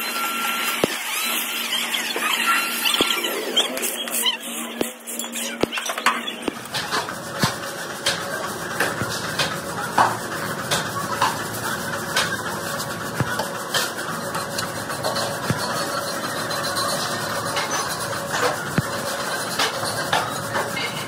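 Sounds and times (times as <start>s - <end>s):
machinery hum: 0.0s - 21.0s.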